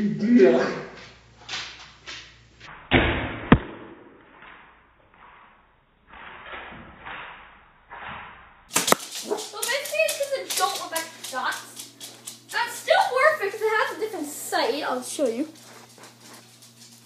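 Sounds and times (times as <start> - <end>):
toy blaster firing thunk: 8.0 - 9.2
handling noises: 8.7 - 14.2.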